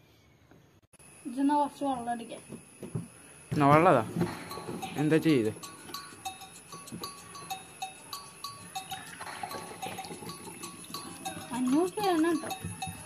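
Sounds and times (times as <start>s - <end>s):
plinking bell-like music: 4.3s - 13.0s
water pouring into plastic cup: 8.9s - 12.7s.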